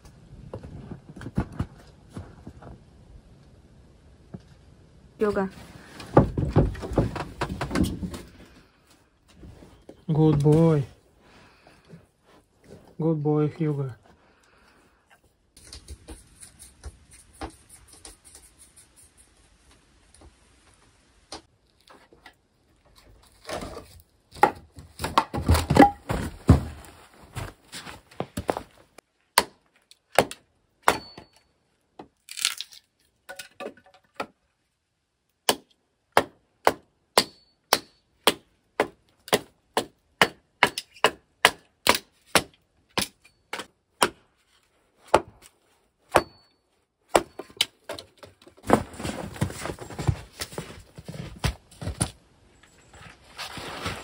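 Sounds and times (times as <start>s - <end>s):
wood clattering: 6.0s - 8.4s
hatchet chopping wood: 29.3s - 31.3s, 35.4s - 44.3s, 45.1s - 45.5s, 46.1s - 46.5s, 47.1s - 48.0s.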